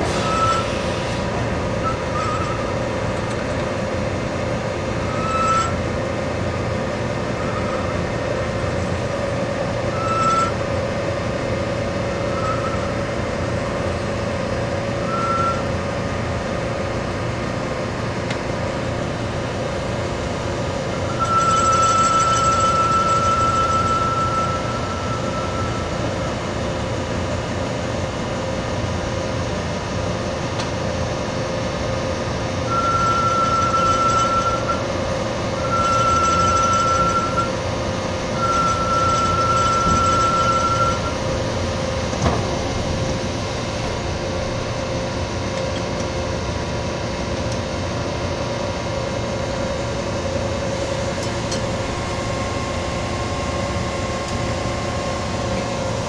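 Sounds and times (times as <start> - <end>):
cutting tool squealing: 5.1 - 5.8, 32.7 - 34.8, 35.6 - 37.6, 38.3 - 41.2
metal lathe humming: 32.4 - 56.0.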